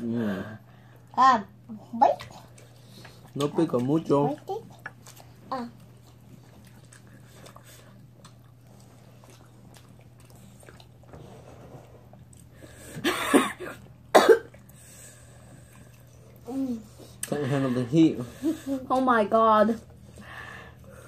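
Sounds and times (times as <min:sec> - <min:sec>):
faint chewing: 0:01.8 - 0:13.0, 0:13.7 - 0:17.4.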